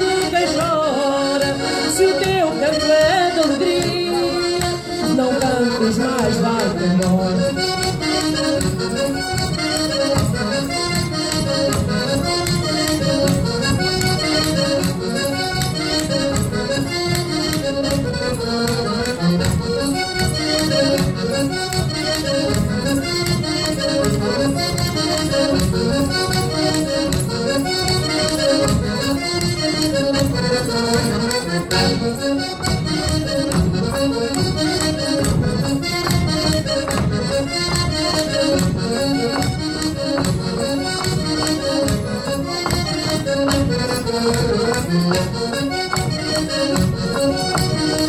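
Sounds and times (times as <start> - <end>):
accordion dance tune: 0.0 - 48.0.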